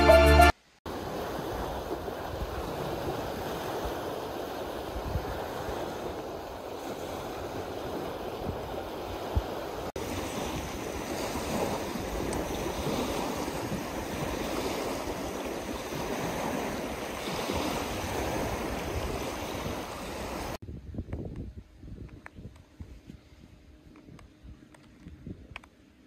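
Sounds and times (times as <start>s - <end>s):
waves washing onto shore: 0.9s - 20.6s
wind buffeting microphone: 0.9s - 25.7s.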